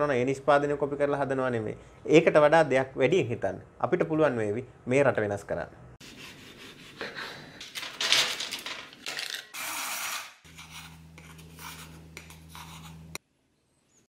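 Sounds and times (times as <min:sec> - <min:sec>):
steady low hum: 0:10.5 - 0:13.2.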